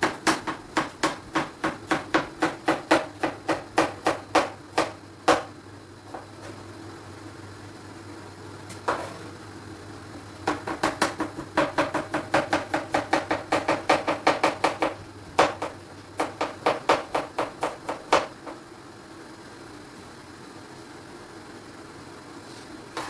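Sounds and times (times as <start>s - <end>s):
knife chopping on cutting board: 0.0s - 5.5s.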